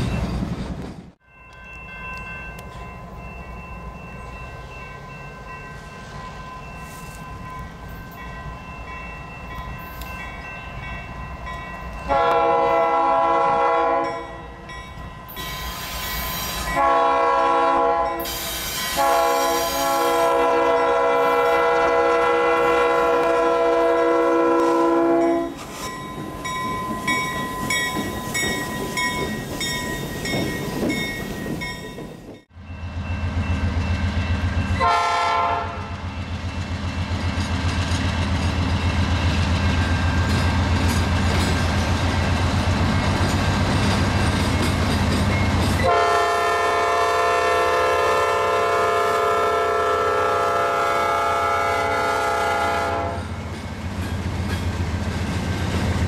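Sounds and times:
diesel locomotive engine rumbling: 0.0s - 56.0s
multi-chime air horn blasts: 12.1s - 14.5s, 15.3s - 25.6s, 34.7s - 35.9s, 45.8s - 53.4s
wheels clicking over rail joints: 25.5s - 32.4s, 37.1s - 45.9s.

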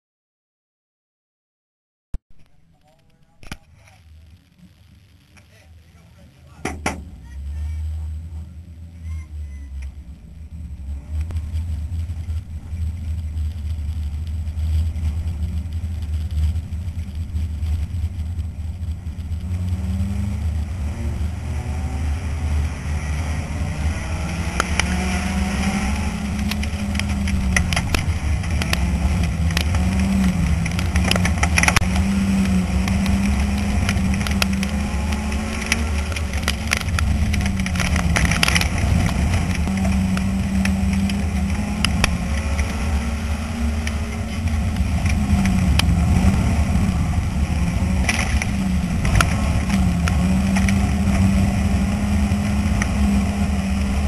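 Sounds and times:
sharp clicks and knocks: 2.2s - 4.1s, 6.6s - 7.2s, 24.3s - 25.1s, 26.2s - 46.0s, 48.0s - 51.4s
race car engine revving: 2.4s - 54.0s.

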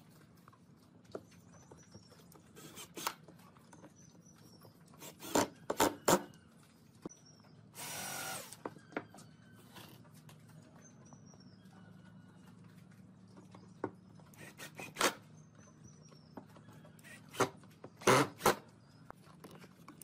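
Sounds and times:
drill motor running: 5.0s - 6.2s, 7.8s - 8.6s, 17.0s - 18.6s.

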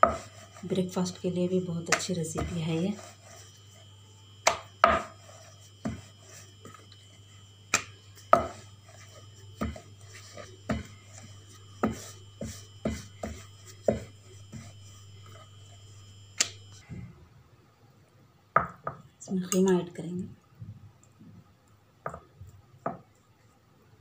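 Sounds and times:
steady low hum: 0.0s - 24.0s
rolling pin knocking on wooden board: 4.4s - 5.2s, 7.8s - 8.6s, 18.6s - 19.0s.

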